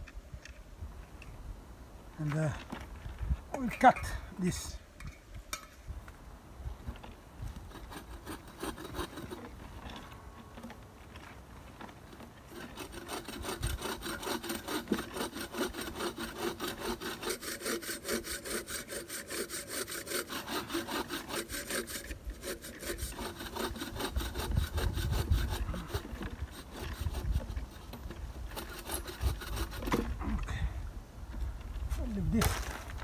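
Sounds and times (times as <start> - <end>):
bow saw cutting wood: 7.6 - 10.1, 12.5 - 30.5.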